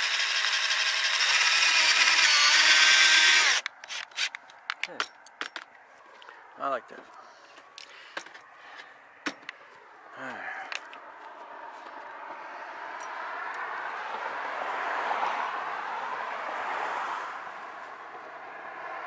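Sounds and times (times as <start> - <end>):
tyre and road noise: 0.0 - 19.0
vehicle passing: 5.2 - 19.0.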